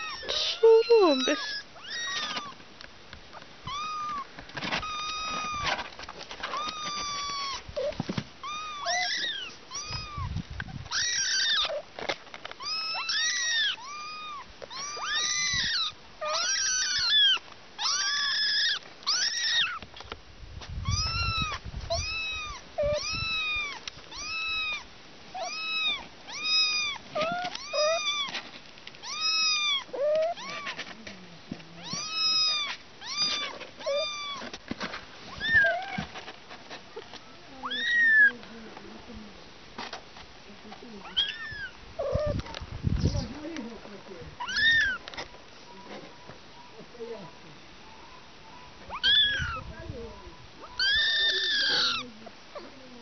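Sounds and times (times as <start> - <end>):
kittens meowing: 0.0 - 2.6, 3.6 - 11.9, 12.6 - 19.9, 20.8 - 28.4, 29.0 - 31.0, 31.8 - 34.6, 35.3 - 36.1, 37.0 - 38.4, 41.0 - 43.6, 44.4 - 45.9, 48.0 - 53.0.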